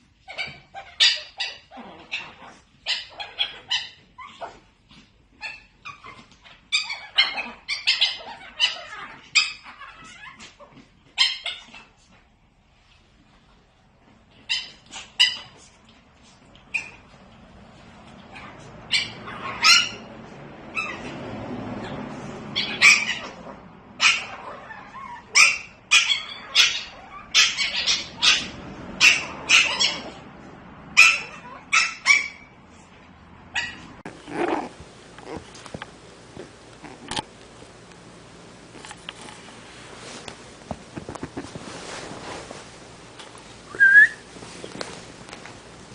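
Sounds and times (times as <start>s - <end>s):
puppies yipping: 0.2s - 4.6s, 5.3s - 12.0s, 14.3s - 15.7s, 16.6s - 17.2s, 18.1s - 30.2s, 30.9s - 32.6s, 33.5s - 35.6s.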